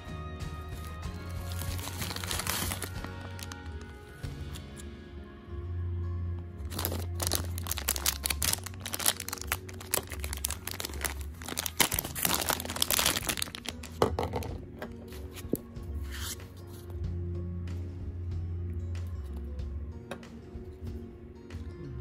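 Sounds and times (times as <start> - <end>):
plastic bag crinkling: 0.8 - 4.1, 6.7 - 14.4.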